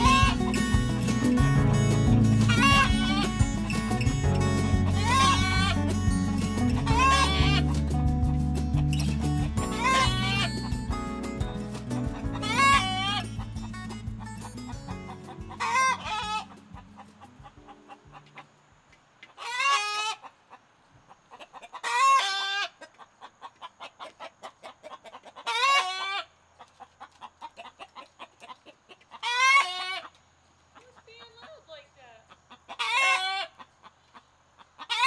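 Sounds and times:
hen squawking: 0.0 - 8.0, 8.9 - 10.9, 12.1 - 18.2
hen clucking softly: 4.9 - 5.8, 6.8 - 7.8, 12.3 - 13.6, 14.7 - 18.6, 19.3 - 31.7, 32.3 - 35.0.

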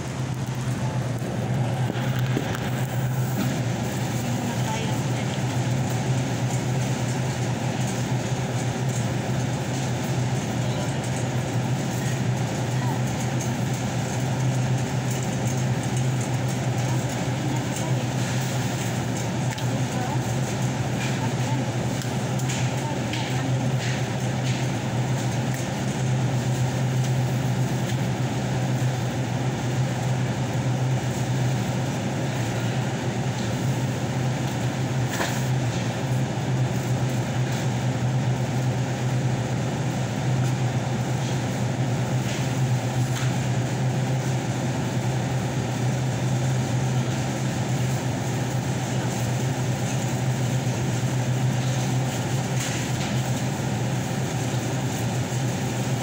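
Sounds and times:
supermarket hum: 0.0 - 56.0.

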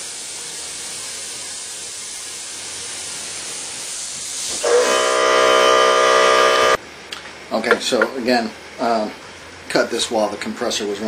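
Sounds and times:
airbrush hissing: 0.0 - 6.8
air compressor humming: 1.7 - 6.8.

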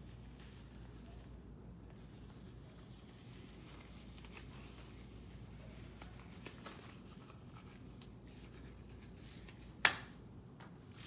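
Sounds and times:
gloves rustling: 0.0 - 11.0
room hum: 0.0 - 11.0.

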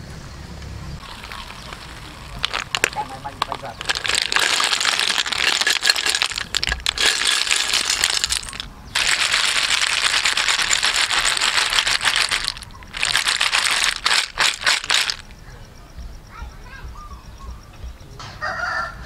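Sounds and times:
snail shells clattering in colander: 1.0 - 15.3.

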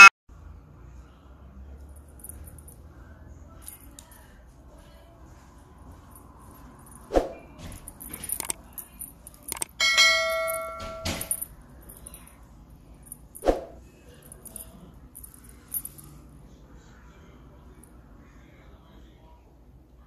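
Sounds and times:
small bells jingling: 5.9 - 12.4, 14.1 - 16.3.

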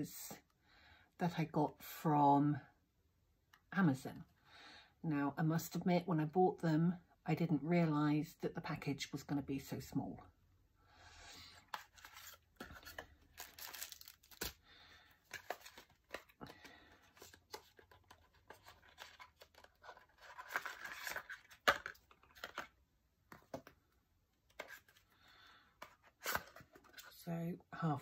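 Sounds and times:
rustling of card and plastic: 11.5 - 27.2.

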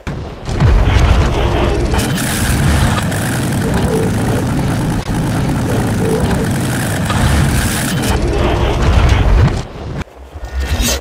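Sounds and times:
heavy truck engine: 0.0 - 10.0
mechanical transformation noises: 0.5 - 9.7.

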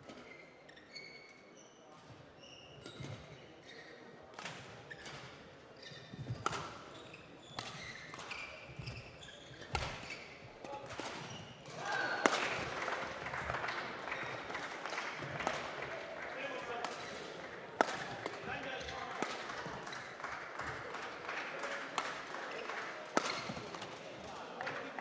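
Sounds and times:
shoes squeaking on court floor: 0.0 - 4.1, 4.9 - 10.6, 22.6 - 23.8
noisy hall din: 10.7 - 25.0
racket hitting shuttlecock: 10.9 - 12.7, 17.8 - 18.5, 19.2 - 19.7, 23.2 - 23.9.

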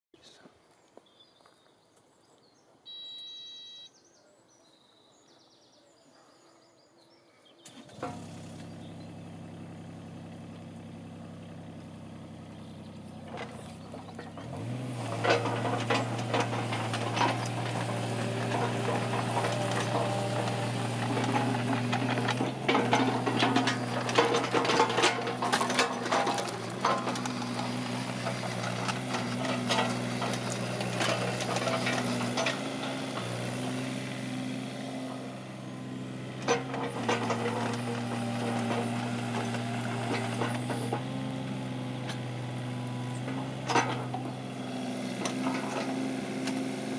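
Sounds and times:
excavator diesel engine running: 7.6 - 46.9
metallic clanks and rattles: 13.2 - 46.9.

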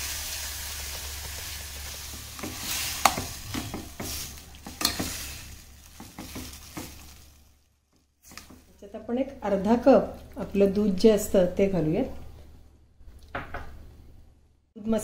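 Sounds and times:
ghee sizzling: 0.0 - 8.9
spoon clinking and scraping pan: 2.4 - 7.0.

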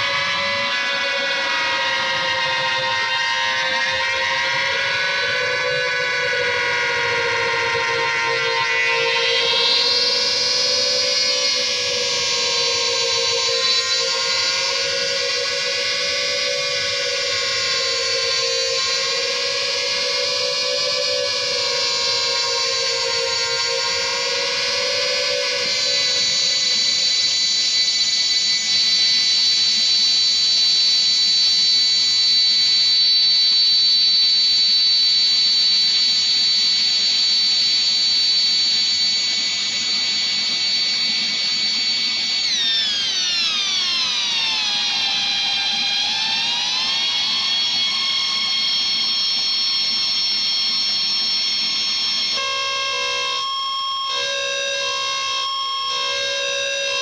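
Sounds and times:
low dense drone: 0.0 - 28.4
high whistling electronic tones: 0.0 - 57.0.

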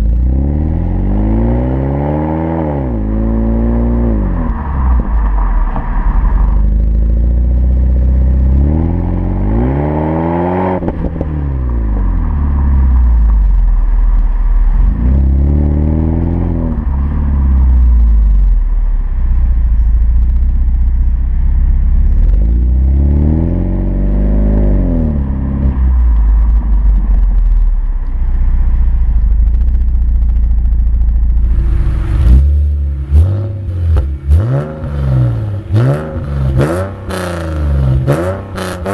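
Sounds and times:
four-cylinder engine revving: 0.0 - 5.3, 6.2 - 13.5, 19.2 - 27.6, 28.2 - 38.9
inline-six engine revving in blips: 32.0 - 38.9.

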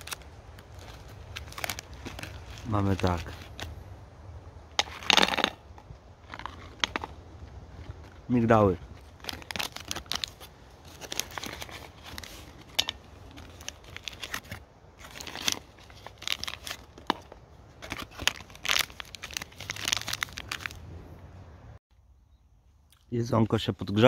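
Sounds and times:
plastic packaging crinkling: 0.0 - 3.7, 6.2 - 20.8.

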